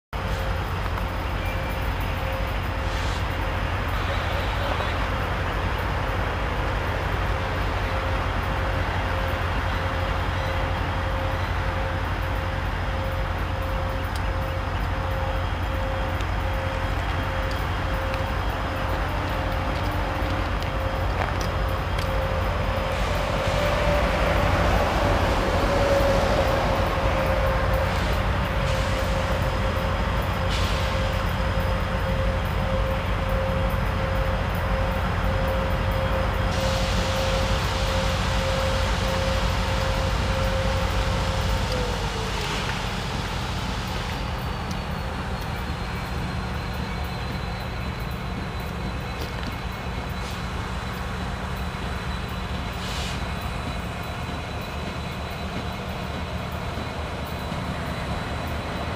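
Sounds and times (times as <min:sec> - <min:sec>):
diesel locomotive rumble: 0:00.0 - 0:58.9
constant whining tone: 0:00.3 - 0:58.9.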